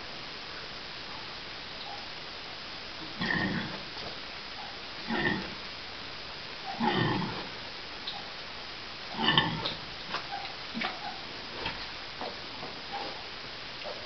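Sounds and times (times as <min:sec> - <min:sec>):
sow grunting: 0:03.0 - 0:03.9, 0:05.0 - 0:05.6, 0:06.6 - 0:07.6, 0:09.1 - 0:11.2.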